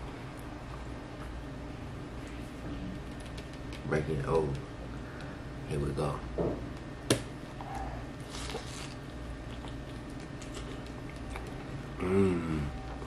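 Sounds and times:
chewing: 0:08.2 - 0:11.9
person humming: 0:12.0 - 0:13.0.

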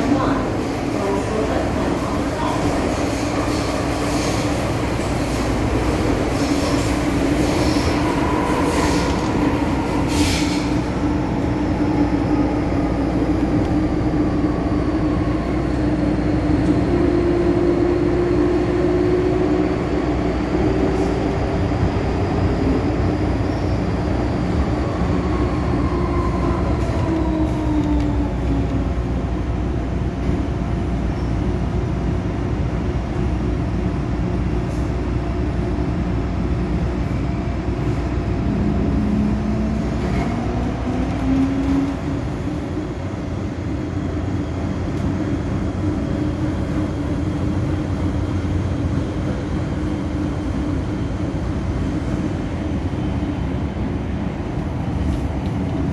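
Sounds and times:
train wheels rumbling on track: 0:00.0 - 0:55.9.

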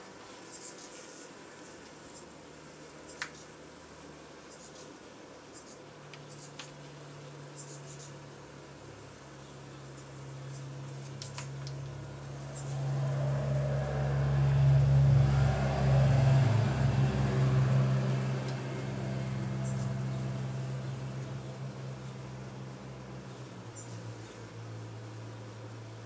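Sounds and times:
honeybees humming: 0:00.0 - 0:26.0
loud noise: 0:12.2 - 0:21.5.

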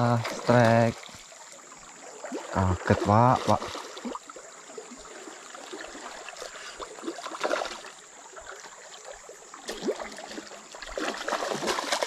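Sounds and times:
fish splashing at surface: 0:09.6 - 0:12.0.

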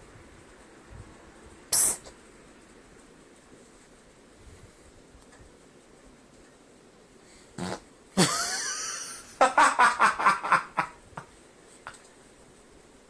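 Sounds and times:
fart sounds: 0:07.6 - 0:07.9.

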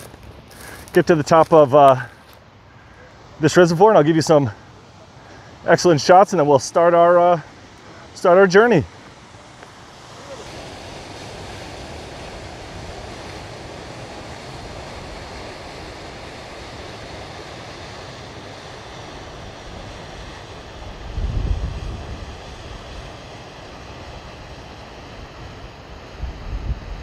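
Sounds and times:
water rushing over dam: 0:00.0 - 0:27.0
wind buffeting microphone: 0:20.2 - 0:23.1, 0:26.2 - 0:27.0.

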